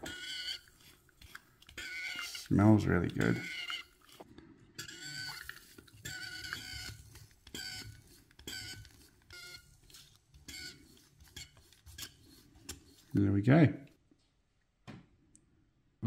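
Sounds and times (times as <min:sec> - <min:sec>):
espresso hand pump squeaky spurts: 0:00.0 - 0:04.2, 0:04.8 - 0:13.2.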